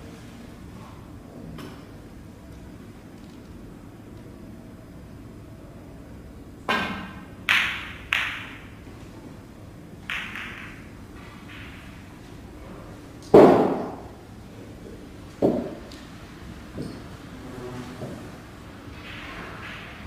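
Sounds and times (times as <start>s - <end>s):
snooker balls clicking: 6.6s - 8.9s, 10.0s - 12.5s, 13.2s - 14.2s, 15.3s - 16.1s, 18.0s - 20.0s
cue tapping cue ball: 6.7s - 8.7s, 10.0s - 12.5s, 13.3s - 14.2s, 15.3s - 16.0s, 17.9s - 20.0s.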